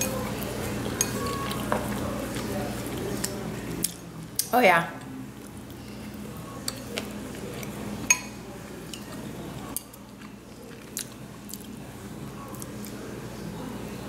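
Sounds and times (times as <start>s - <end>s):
person chewing: 0.0s - 4.5s, 8.9s - 11.8s.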